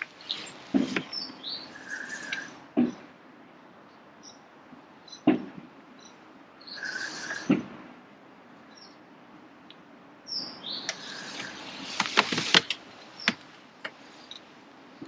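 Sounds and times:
bird chirping: 0.0 - 3.0, 6.0 - 7.6, 8.7 - 9.0, 10.3 - 12.2, 13.0 - 13.4.

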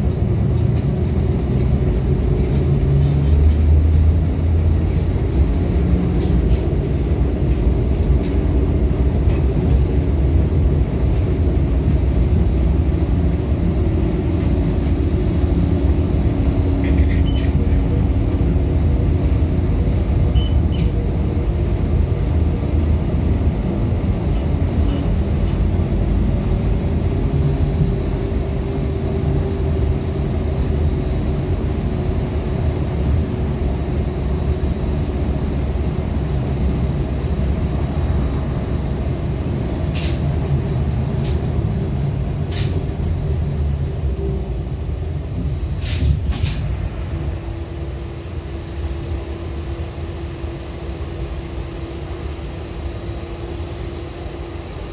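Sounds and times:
tram hum: 0.0 - 54.9
tram wheels rumbling on rails: 0.0 - 54.9.

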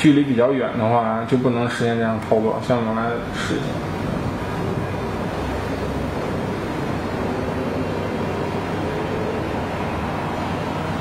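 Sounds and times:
low rumble and hiss: 0.0 - 11.0.

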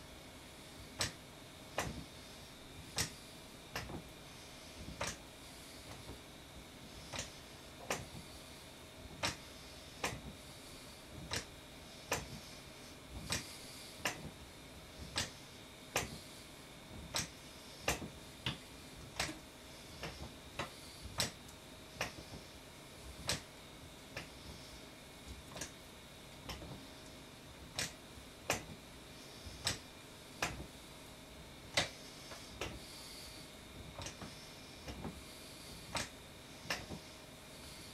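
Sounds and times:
exercise stepper clicking: 1.8 - 2.2, 2.9 - 4.1, 6.9 - 8.3, 9.1 - 12.6, 13.2 - 14.4, 15.0 - 16.3, 17.0 - 22.5, 23.1 - 23.5, 25.3 - 25.8, 26.4 - 26.9, 27.7 - 28.8, 29.5 - 30.7, 31.7 - 33.4, 34.0 - 37.9.

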